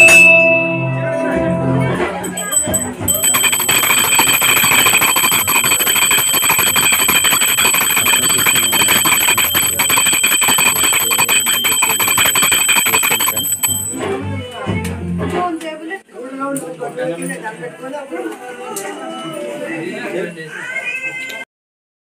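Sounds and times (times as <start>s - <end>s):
brass bell ringing rapidly: 0.0s - 0.6s, 2.2s - 14.0s.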